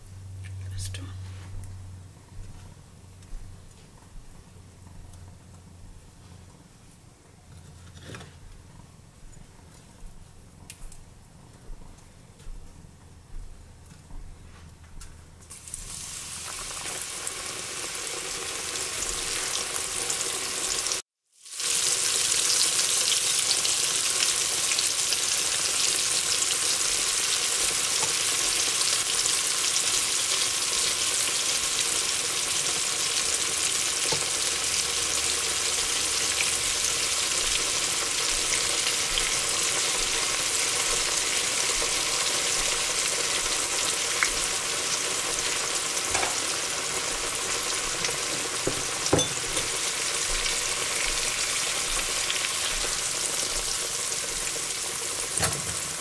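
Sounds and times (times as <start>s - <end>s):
oil sizzling and crackling: 15.4s - 56.0s.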